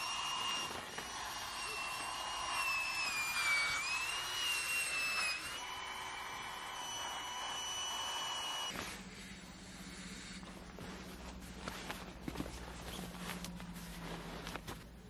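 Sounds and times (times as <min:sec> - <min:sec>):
electric air pump whining: 0:00.0 - 0:11.2.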